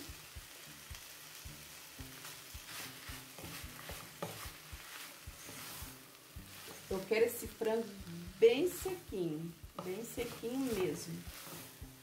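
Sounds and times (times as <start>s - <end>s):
light sizzle: 0.0s - 12.0s
spatula knocking and scraping pot: 2.6s - 7.7s, 8.3s - 12.0s.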